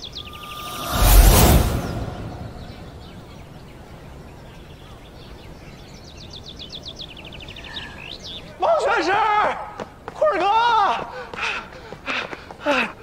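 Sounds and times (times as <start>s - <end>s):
bird trilling: 0.0s - 1.0s
loud rushing burst: 0.1s - 3.5s.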